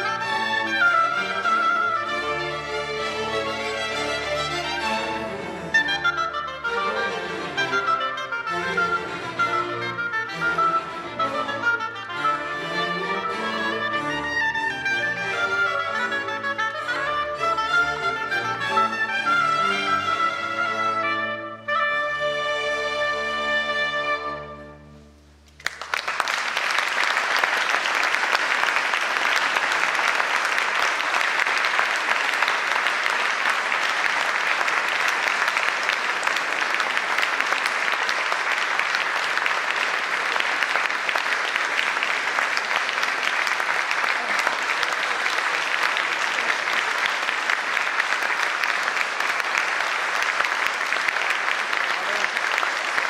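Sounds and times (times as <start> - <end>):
oboe and strings chord: 0.0 - 25.0
audience applause: 25.5 - 53.0.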